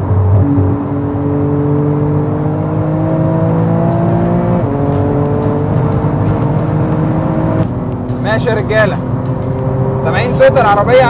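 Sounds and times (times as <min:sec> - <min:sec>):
car engine accelerating: 0:00.0 - 0:11.0.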